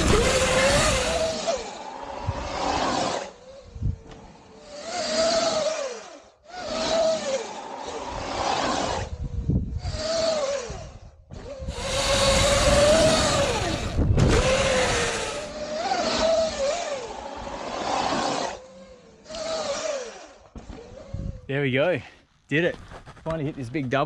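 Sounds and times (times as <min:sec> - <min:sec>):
wind rushing: 0:00.0 - 0:04.1, 0:08.0 - 0:15.6
electric motor whine: 0:00.0 - 0:21.5
tyre noise on dirt: 0:22.6 - 0:24.0.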